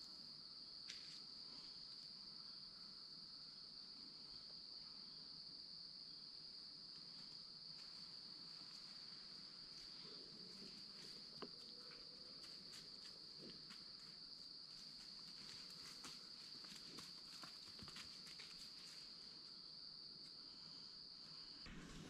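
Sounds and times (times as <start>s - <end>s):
insects chorus: 0.0s - 22.0s
faint ticks and rustles: 0.8s - 2.6s, 6.9s - 20.7s.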